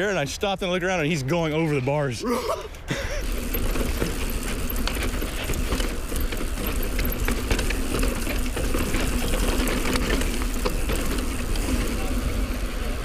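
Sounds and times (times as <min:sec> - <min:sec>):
bike clicks and rattles: 0:02.7 - 0:13.0
bike tyres on dirt trail: 0:03.1 - 0:13.0.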